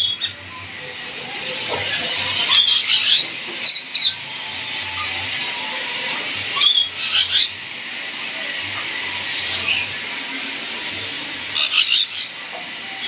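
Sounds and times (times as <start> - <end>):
parrots squawking: 0.0 - 7.8, 8.8 - 10.1, 11.4 - 13.0.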